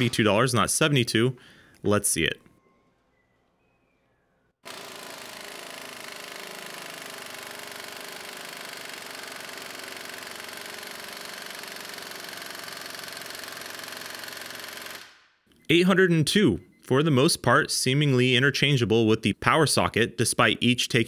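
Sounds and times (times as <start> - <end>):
air impact wrench hammering: 4.6 - 15.2.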